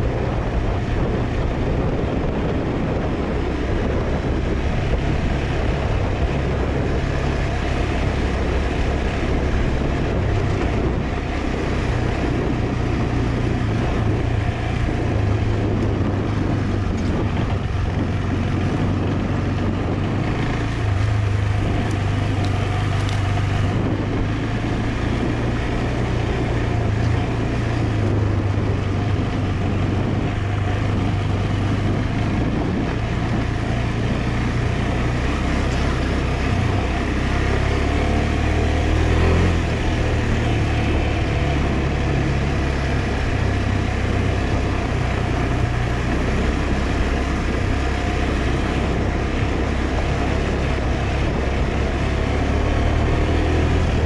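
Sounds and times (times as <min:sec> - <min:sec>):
motorcycle engine running: 0:00.0 - 0:54.0
wind noise: 0:00.0 - 0:54.0.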